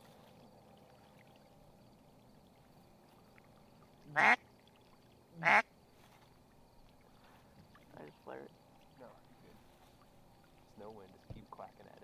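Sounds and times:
duck quacks: 0:04.1 - 0:04.4, 0:05.4 - 0:05.7.

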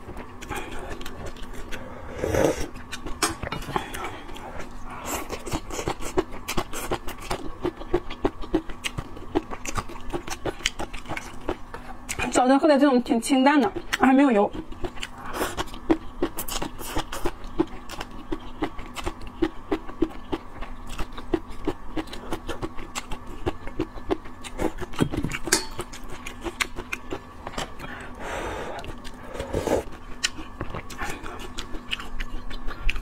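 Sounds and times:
slurping: 0:02.1 - 0:02.7
wet chewing: 0:02.6 - 0:12.3, 0:13.6 - 0:33.0.

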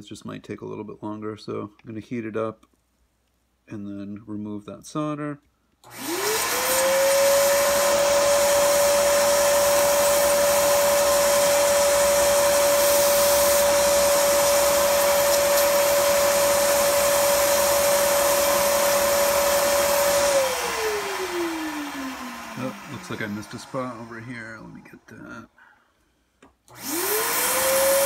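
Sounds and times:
shop vac motor whine: 0:05.8 - 0:24.9, 0:26.7 - 0:28.0.

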